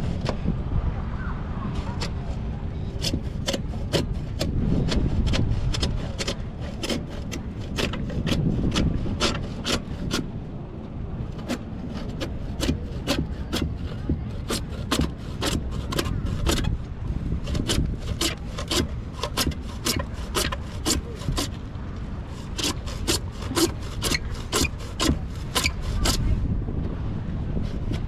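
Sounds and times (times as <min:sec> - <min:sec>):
hand saw cutting plastic pipe: 0:02.9 - 0:10.3, 0:11.3 - 0:21.6, 0:22.3 - 0:26.4, 0:27.6 - 0:28.0.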